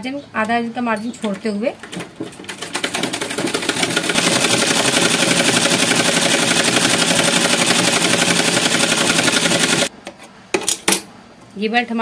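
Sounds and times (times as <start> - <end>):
sewing machine stitching: 1.9 - 9.9.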